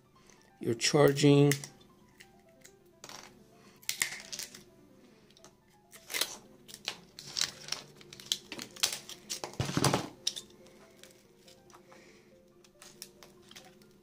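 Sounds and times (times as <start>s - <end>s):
phone parts clicking and scraping: 3.8s - 4.6s, 5.4s - 9.6s, 10.2s - 11.8s.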